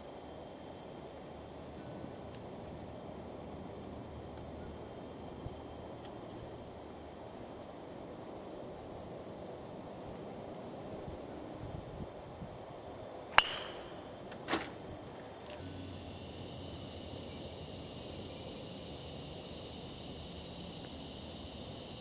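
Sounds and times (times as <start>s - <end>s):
insects trilling: 0.0s - 22.0s
golf driver striking ball: 13.4s - 14.7s.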